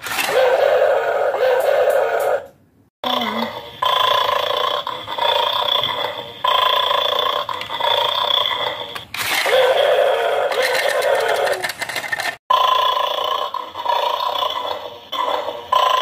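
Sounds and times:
harsh electronic toy sound: 0:03.1 - 0:16.0
rapid mechanical clicking: 0:10.6 - 0:12.4.

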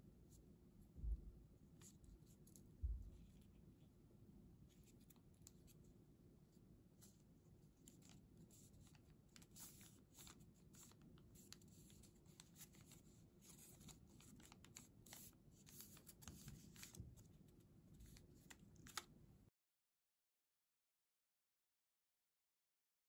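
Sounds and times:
low room hum: 0:00.0 - 0:19.5
paper crinkling: 0:07.0 - 0:19.1.

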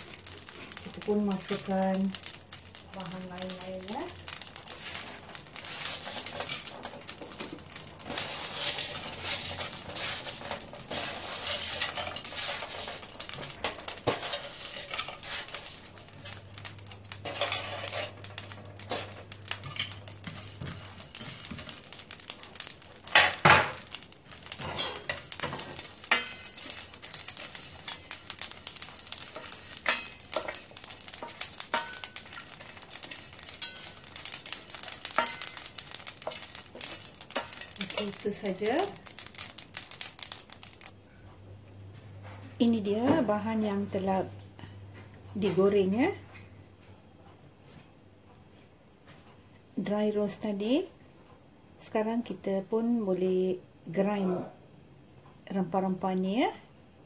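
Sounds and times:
spices rattling in metal pan: 0:00.0 - 0:41.0.

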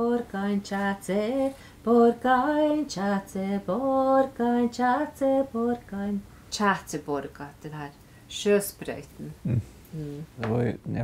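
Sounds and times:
woman singing unaccompanied: 0:00.0 - 0:08.0.

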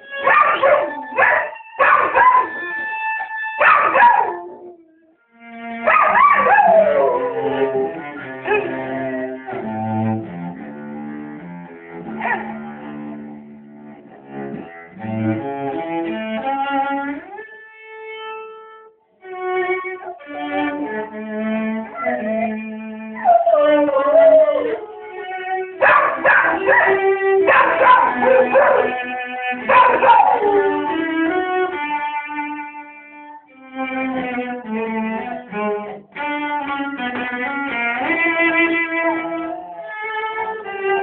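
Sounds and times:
cello playing slow notes: 0:00.0 - 0:03.6, 0:04.4 - 0:41.0
dog howling: 0:00.3 - 0:02.8, 0:05.9 - 0:08.8, 0:23.2 - 0:25.1, 0:25.8 - 0:29.0, 0:29.6 - 0:31.1, 0:39.0 - 0:40.6.

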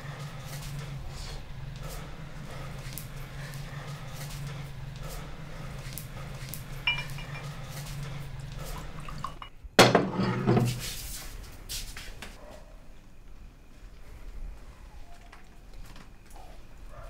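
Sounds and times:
low steady hum: 0:00.0 - 0:11.0
glass clinking: 0:06.8 - 0:08.1, 0:08.7 - 0:10.7
liquor pouring into glass: 0:08.5 - 0:09.5.

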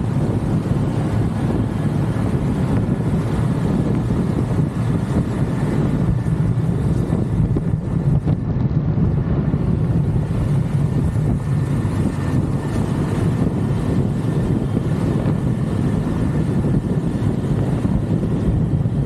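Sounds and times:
motorcycle engine: 0:00.0 - 0:19.0
road noise: 0:00.0 - 0:19.0
wind rushing over microphone: 0:00.0 - 0:19.0.

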